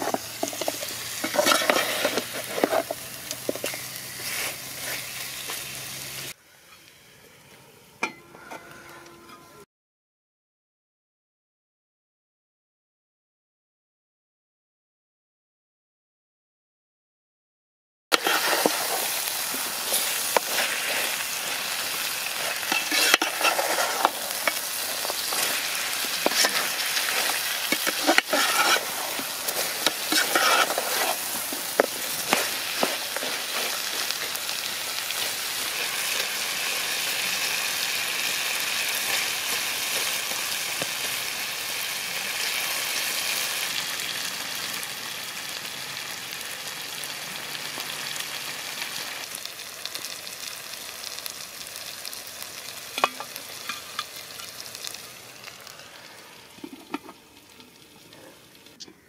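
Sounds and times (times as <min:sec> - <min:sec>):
metal ladle scraping pot: 0:00.0 - 0:05.6, 0:18.2 - 0:37.0, 0:52.9 - 0:54.6, 0:56.6 - 0:57.2
curry sizzling and bubbling: 0:00.0 - 0:06.4, 0:18.1 - 0:59.0.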